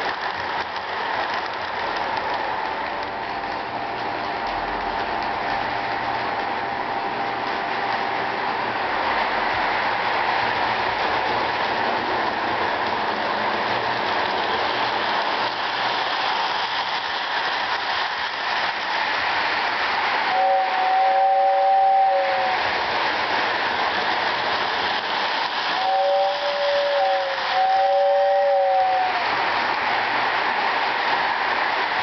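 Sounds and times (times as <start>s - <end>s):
toy train running on track: 0.0s - 32.0s
two-tone train whistle: 20.3s - 22.7s, 25.8s - 29.3s.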